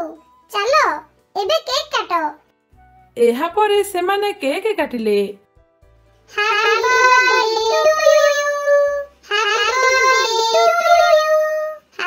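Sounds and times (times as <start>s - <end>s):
faint low backing music: 0.0s - 12.0s
synthetic voice singing: 6.4s - 12.0s.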